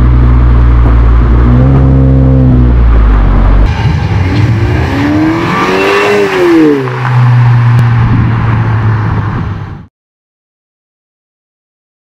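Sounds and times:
deep exhaust drone: 0.0s - 5.9s
car accelerating past: 3.6s - 9.3s.

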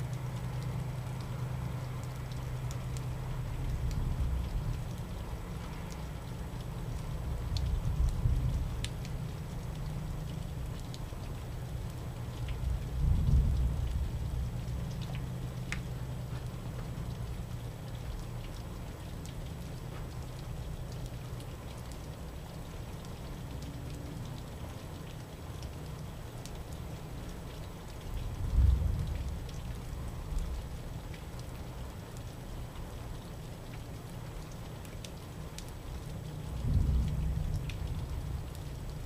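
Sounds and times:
drips: 0.0s - 39.0s
rain falling: 0.0s - 39.0s
thunder rumbles: 12.6s - 14.8s, 28.2s - 30.7s, 36.5s - 39.0s.

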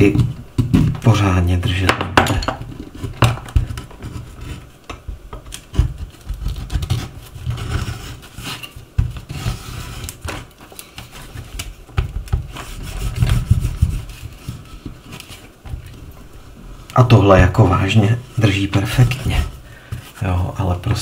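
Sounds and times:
hand tools knocking and scraping: 0.0s - 15.9s.

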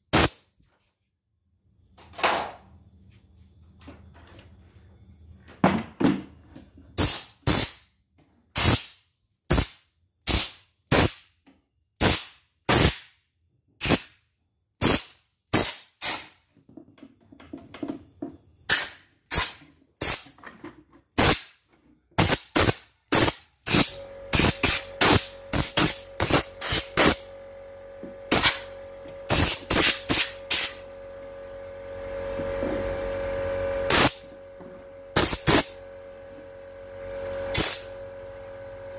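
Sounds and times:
compressed air blasts: 0.0s - 0.4s, 7.0s - 7.8s, 8.6s - 11.3s, 12.0s - 13.1s, 13.8s - 14.2s, 14.8s - 16.4s, 18.7s - 20.3s, 21.2s - 21.6s, 22.2s - 27.2s, 28.3s - 28.7s, 29.3s - 30.8s, 33.9s - 34.2s, 35.2s - 35.8s, 37.5s - 37.9s
steady hum: 22.2s - 38.9s.

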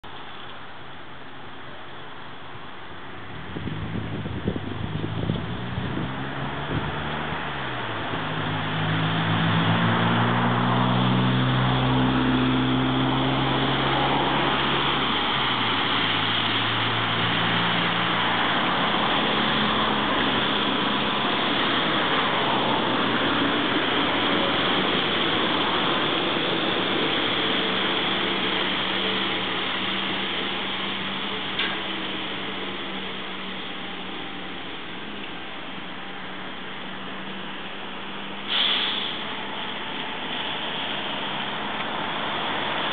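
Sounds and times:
trolleybus passing on wet street: 0.0s - 42.9s
tyres hissing: 36.8s - 42.9s.

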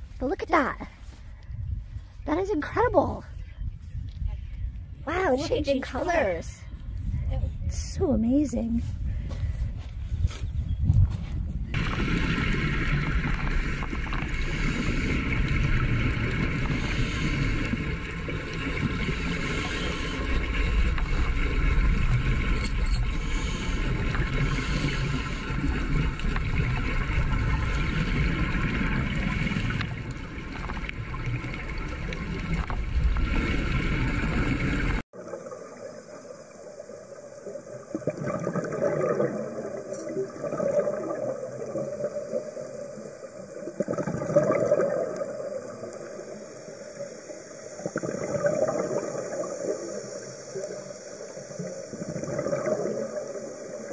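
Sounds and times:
underwater droning hum: 11.6s - 53.9s
water gurgling: 11.7s - 53.9s.

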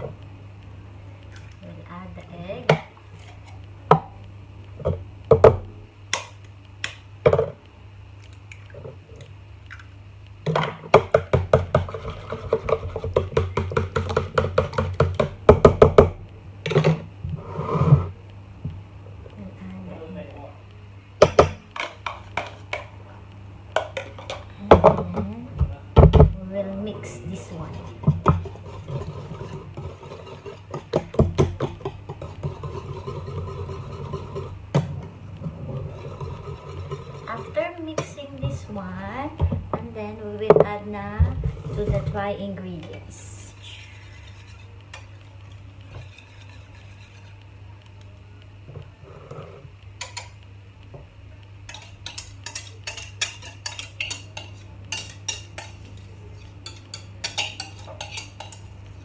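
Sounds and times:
steady low hum: 0.0s - 59.0s
whisk beating batter: 11.0s - 15.8s, 27.1s - 34.6s, 43.8s - 47.5s, 51.7s - 58.7s
whisk clicking against bowl: 51.7s - 56.0s, 56.6s - 58.7s.

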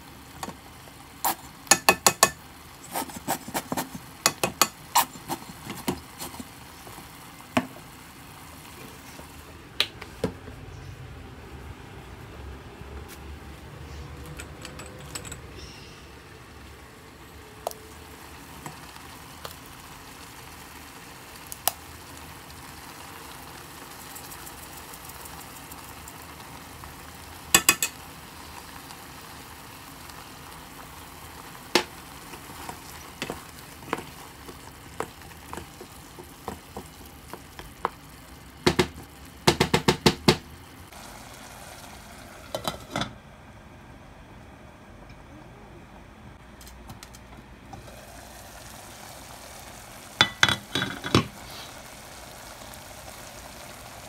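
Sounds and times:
sauce sizzling: 0.0s - 9.8s, 16.1s - 42.9s, 47.7s - 54.0s
spoon knocking against pot: 1.7s - 2.4s, 4.2s - 4.8s, 27.6s - 28.0s
wooden spoon stirring sauce: 32.2s - 38.0s.

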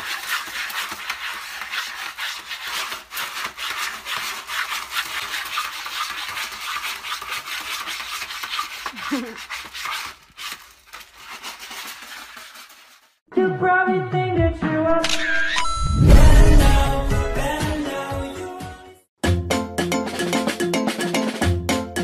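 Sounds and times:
cat scratching in litter: 0.0s - 13.2s.

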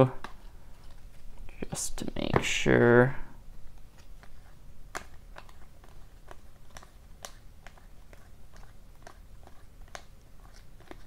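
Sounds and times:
cards snapping while flipped: 3.8s - 11.0s.

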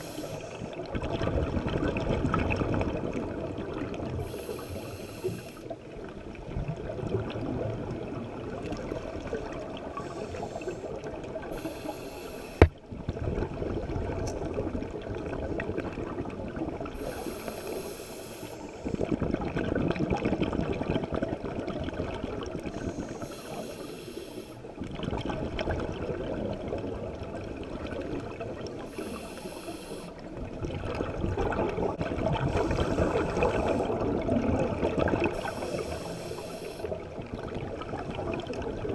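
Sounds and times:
hissing regulator inhale: 0.0s - 0.8s, 4.2s - 5.8s, 10.0s - 12.8s, 17.0s - 19.0s, 22.7s - 24.7s, 28.9s - 30.2s, 32.5s - 34.0s, 35.3s - 37.0s
bubbling exhale: 4.2s - 5.8s, 9.8s - 12.7s, 28.8s - 30.3s, 30.9s - 37.0s.

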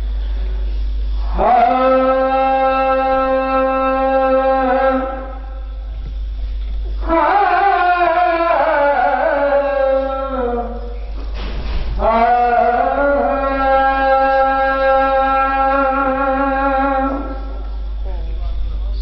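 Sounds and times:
steady low hum: 0.0s - 19.0s
man chanting into a microphone: 12.0s - 17.7s.

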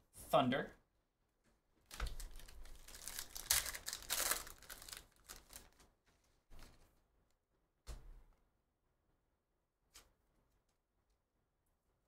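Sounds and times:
card pack wrapper tearing: 1.9s - 5.8s.

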